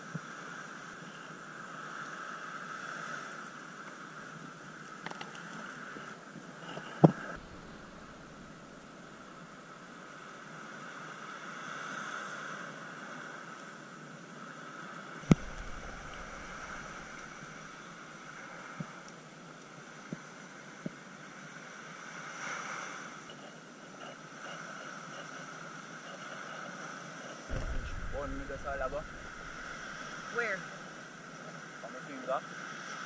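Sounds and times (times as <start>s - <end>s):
wind: 0.0s - 33.0s
sharp knock: 7.4s - 8.8s, 15.3s - 17.4s, 27.5s - 30.3s
surf washing: 7.4s - 13.5s, 14.6s - 19.0s, 21.4s - 33.0s
faint clicks: 15.3s - 17.5s.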